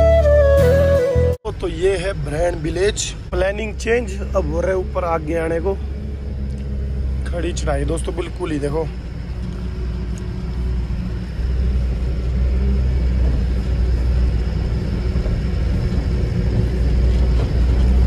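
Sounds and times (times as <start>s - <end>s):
truck diesel engine climbing: 0.0s - 18.0s.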